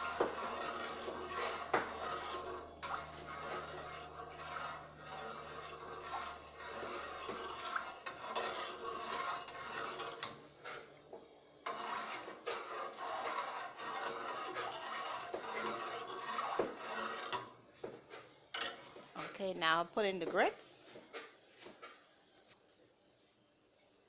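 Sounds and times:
spoon stirring and scraping pot: 0:00.0 - 0:22.1.

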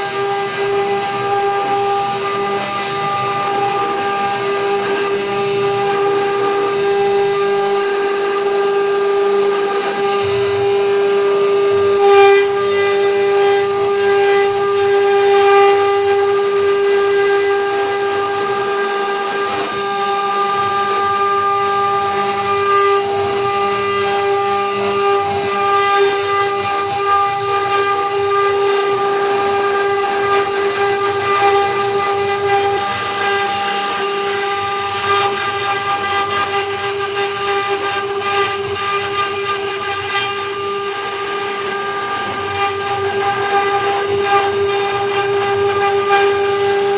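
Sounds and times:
router spindle motors whining: 0:00.0 - 0:46.9.

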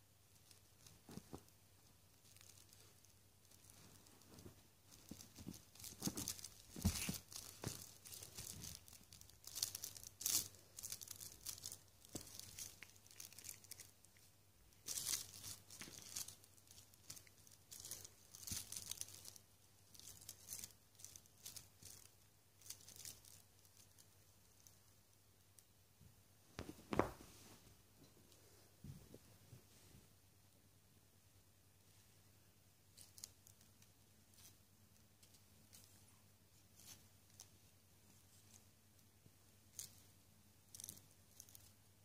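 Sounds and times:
cat scratching a blanket: 0:02.4 - 0:13.9.

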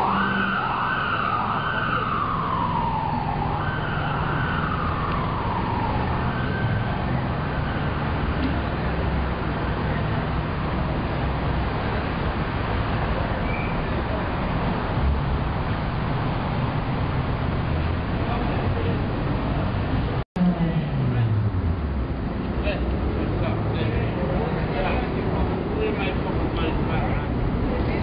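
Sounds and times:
emergency vehicle siren wailing: 0:00.0 - 0:21.4
street traffic rumble: 0:00.0 - 0:28.0.

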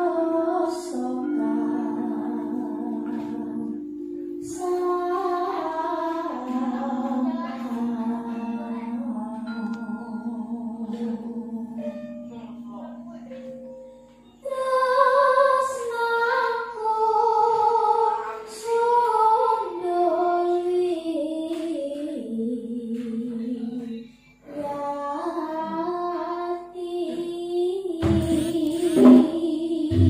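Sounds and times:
woman singing solo: 0:00.0 - 0:12.2
low gamelan note ringing: 0:00.0 - 0:20.5.

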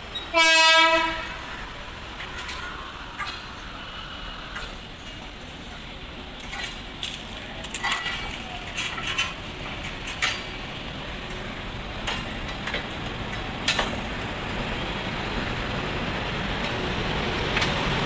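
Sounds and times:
electric locomotive rumble and hiss: 0:00.0 - 0:18.0
sharp clicks and knocks: 0:12.0 - 0:14.2.

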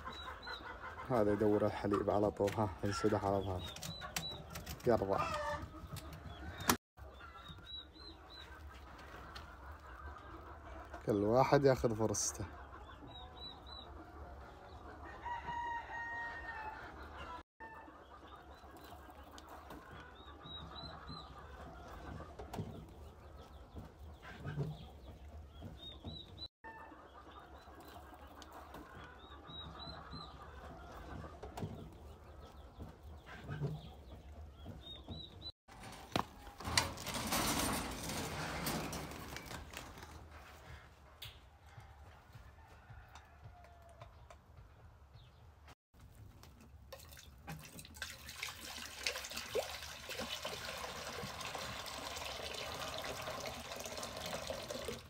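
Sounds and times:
chickens clucking: 0:00.0 - 0:45.8
rooster crowing: 0:15.1 - 0:16.8.

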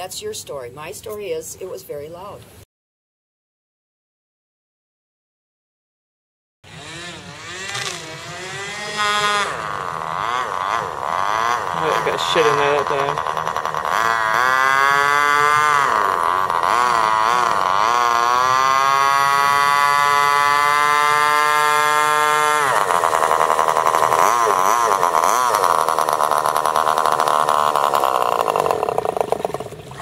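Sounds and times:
small boat engine revving: 0:06.6 - 0:30.0.

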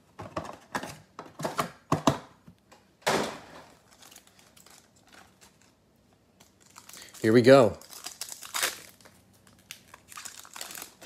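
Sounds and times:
foil crinkly rustle: 0:03.8 - 0:05.8, 0:06.4 - 0:11.0.

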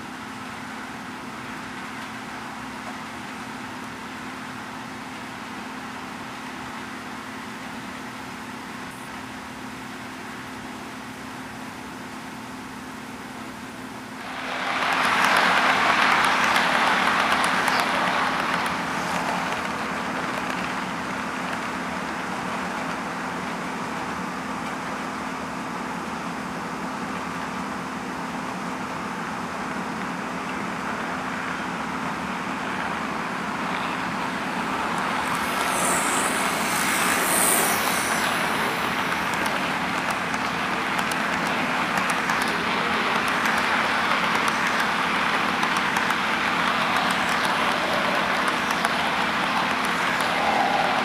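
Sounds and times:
model train rolling whir: 0:00.0 - 0:51.0
high hiss: 0:14.1 - 0:23.8, 0:31.0 - 0:51.0.

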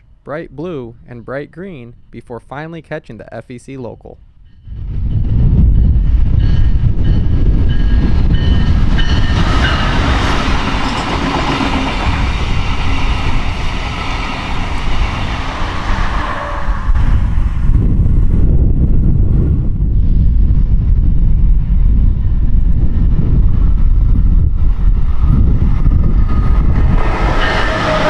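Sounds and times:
train passing at speed: 0:04.4 - 0:20.2, 0:21.7 - 0:28.0.

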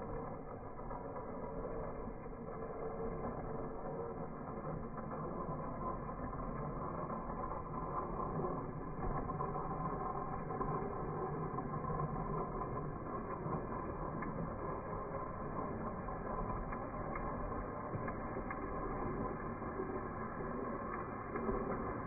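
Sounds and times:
toy train motor whirring: 0:00.0 - 0:22.0
toy train wheels rolling on track: 0:00.0 - 0:22.0.

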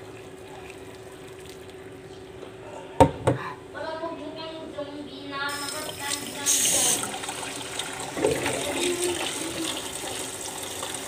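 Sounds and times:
water pouring into metal sink: 0:05.5 - 0:11.0.

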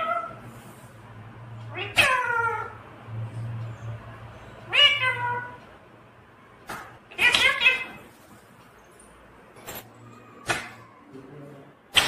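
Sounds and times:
parakeet meow-like calls: 0:01.7 - 0:02.8.

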